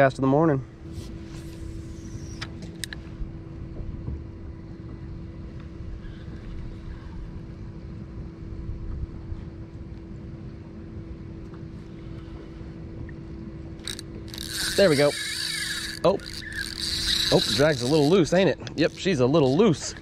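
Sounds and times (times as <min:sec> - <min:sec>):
water and wind rumble: 0:00.0 - 0:20.0
electric trolling motor hum: 0:10.2 - 0:20.0.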